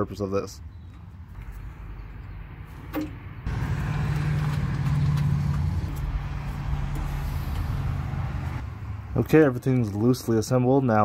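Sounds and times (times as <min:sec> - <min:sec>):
vehicle engine running: 0:03.4 - 0:09.4.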